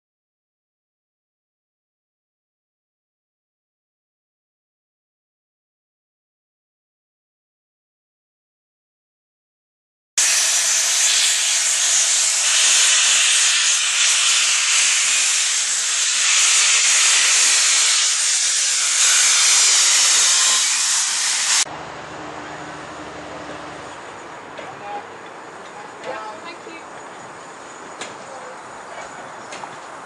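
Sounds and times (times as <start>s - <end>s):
steam hissing: 10.2s - 21.7s.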